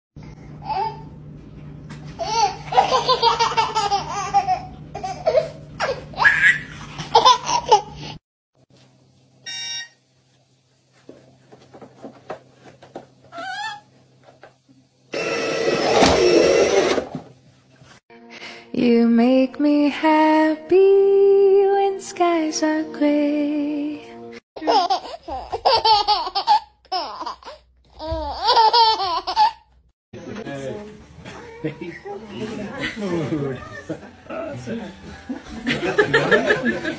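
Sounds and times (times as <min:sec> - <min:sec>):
toddler laughing: 0:02.2 - 0:08.1, 0:24.6 - 0:29.7
toddler squealing: 0:13.4 - 0:13.9.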